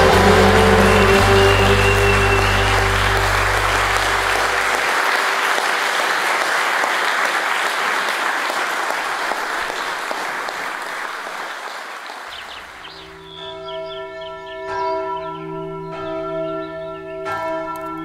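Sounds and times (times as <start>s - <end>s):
background music: 0.0s - 5.4s
crowd applauding: 0.0s - 13.0s.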